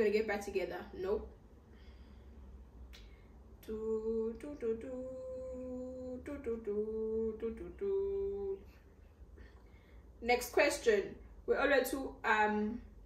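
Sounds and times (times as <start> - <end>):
woman humming a tune: 3.6 - 8.7.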